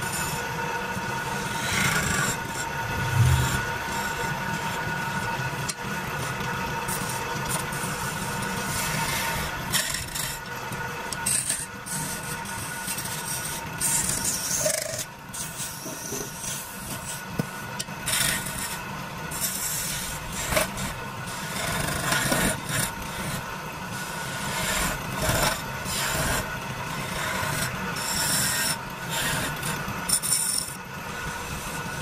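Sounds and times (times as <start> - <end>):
chisel scraping spinning wood: 1.4 - 4.2, 6.9 - 10.4, 18.1 - 32.0.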